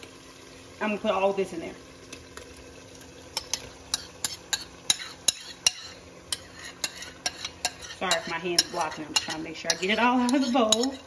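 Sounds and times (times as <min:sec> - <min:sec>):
metal spoon scraping a bowl: 0:03.4 - 0:11.0.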